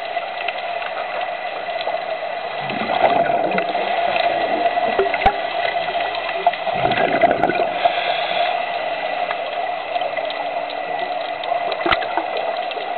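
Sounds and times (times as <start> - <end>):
bubbling gurgles: 0.0 - 8.5, 9.9 - 12.9
crackles: 0.0 - 12.9
muffled underwater rushing hiss: 0.0 - 12.9.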